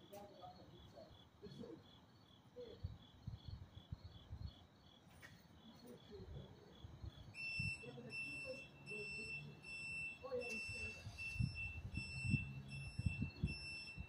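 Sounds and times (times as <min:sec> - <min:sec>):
crickets chirping: 0:00.0 - 0:14.0
high electronic beeping: 0:07.4 - 0:14.0.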